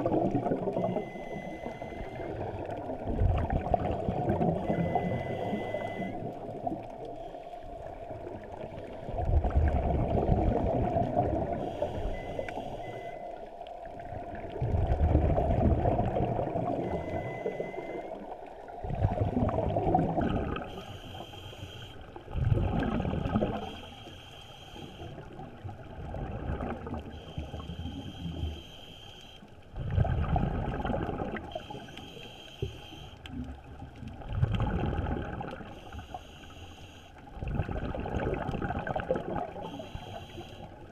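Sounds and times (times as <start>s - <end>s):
gurgling exhaled bubbles: 0.0s - 7.1s, 7.8s - 11.9s, 13.8s - 20.8s, 22.2s - 23.8s, 25.2s - 28.4s, 29.8s - 31.9s, 33.3s - 35.7s, 37.3s - 39.8s
regulator hissing inhalations: 39.7s - 40.7s.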